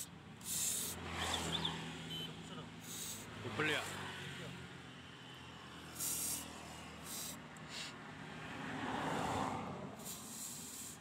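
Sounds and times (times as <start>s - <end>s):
aerosol spray hissing bursts: 0.0s - 1.3s, 2.8s - 3.3s, 5.9s - 7.9s, 10.0s - 11.0s.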